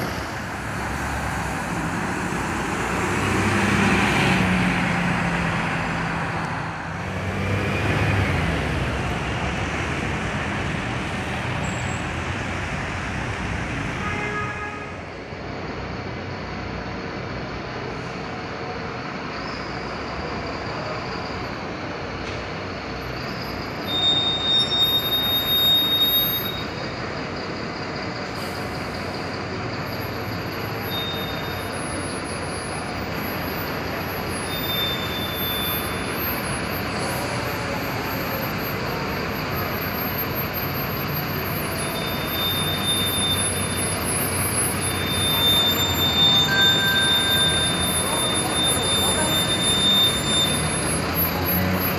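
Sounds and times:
bus diesel engine: 0.0s - 51.9s
traffic rumble: 0.0s - 51.9s
brief high squeals: 23.1s - 26.8s, 30.0s - 32.8s, 34.3s - 51.9s.

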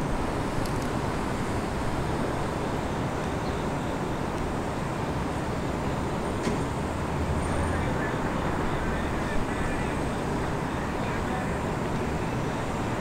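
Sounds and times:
rail yard rumble and hiss: 0.0s - 13.0s.

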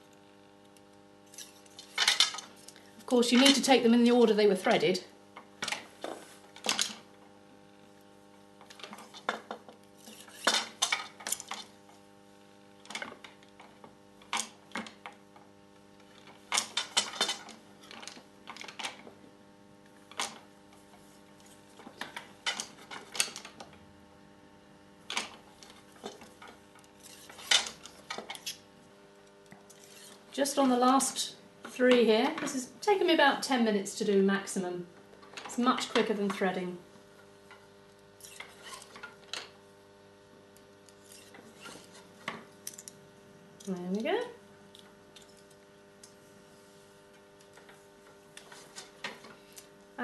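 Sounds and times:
faint steady hum: 0.0s - 50.0s.

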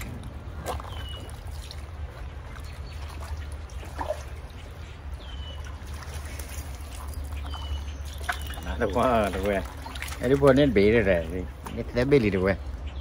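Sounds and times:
stream water running: 0.0s - 13.0s
fish splashing at the surface: 5.6s - 11.7s.

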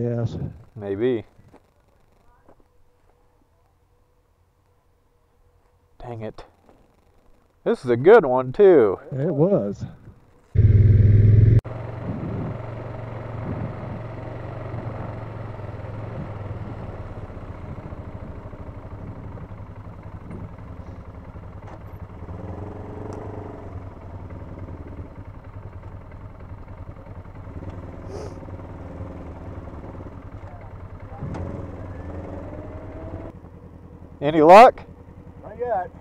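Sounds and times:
atv engine running: 10.0s - 36.0s.

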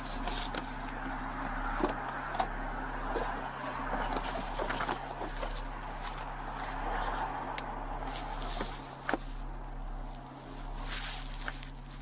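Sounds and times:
vehicle and street noise: 0.0s - 12.0s
rustling: 3.0s - 6.7s, 8.0s - 12.0s.

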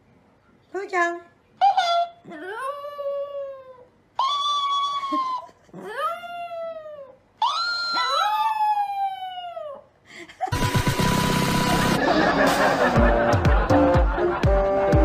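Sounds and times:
small dog howling: 1.6s - 9.9s.

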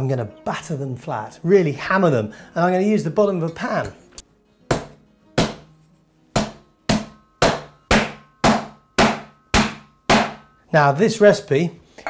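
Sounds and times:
metal pan pounding meat: 4.7s - 5.7s, 6.4s - 10.5s.

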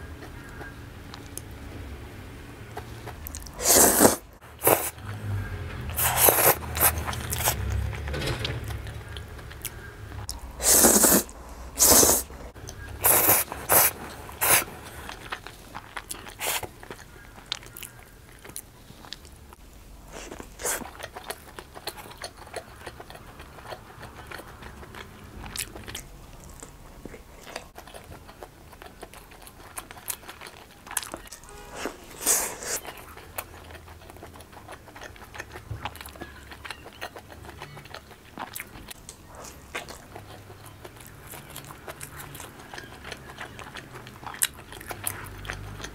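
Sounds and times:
chewing and biting crust: 2.7s - 5.1s, 5.9s - 8.0s, 8.7s - 45.9s
slurping spaghetti: 3.2s - 5.0s, 5.9s - 7.7s, 10.6s - 15.4s, 31.6s - 33.2s.

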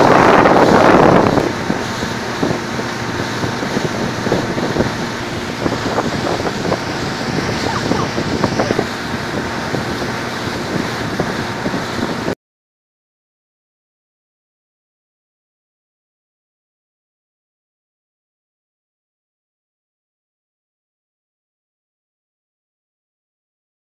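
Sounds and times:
water slapping: 0.0s - 12.3s
sea water rushing and splashing: 0.0s - 12.4s
wind buffeting microphone: 0.0s - 12.4s.

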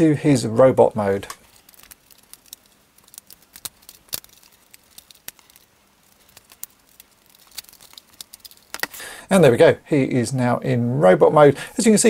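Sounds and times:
plastic toy parts clicking: 1.3s - 9.0s.

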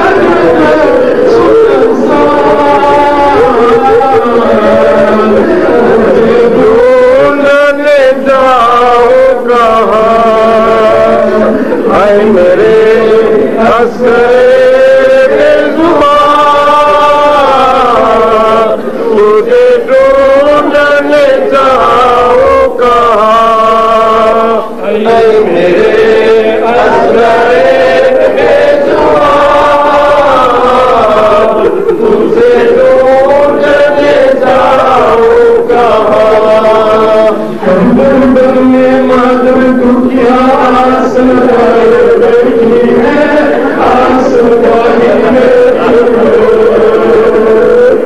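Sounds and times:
men chanting into microphones: 0.0s - 48.0s.

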